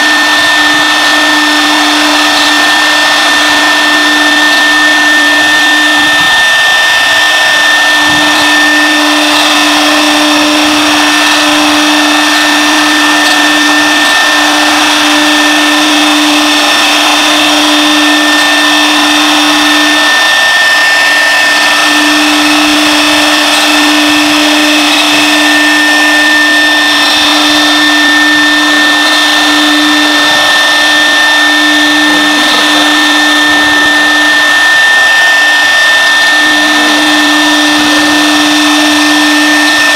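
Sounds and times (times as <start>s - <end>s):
router spindle cutting wood: 0.0s - 39.9s.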